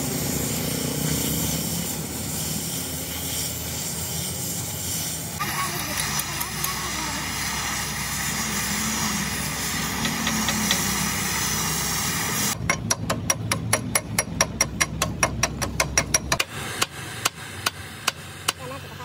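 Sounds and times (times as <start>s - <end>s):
cutting torch hissing: 0.0s - 12.6s, 16.4s - 19.0s
rapid hammer taps on metal: 12.6s - 18.6s.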